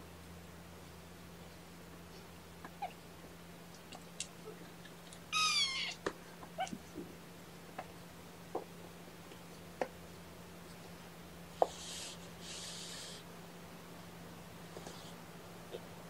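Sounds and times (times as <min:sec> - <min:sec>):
kitten mewing: 0:05.3 - 0:06.0.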